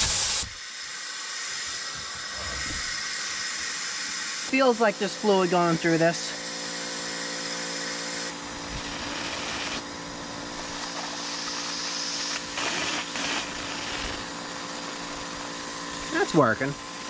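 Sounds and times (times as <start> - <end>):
hiss of compressed air: 0.0 - 0.6, 11.0 - 14.3
steady hum: 1.8 - 17.0.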